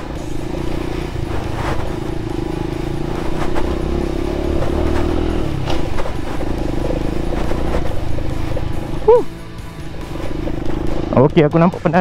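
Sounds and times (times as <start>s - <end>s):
moped engine running: 0.0s - 12.0s
knocks and rattles from bumps: 3.2s - 8.8s.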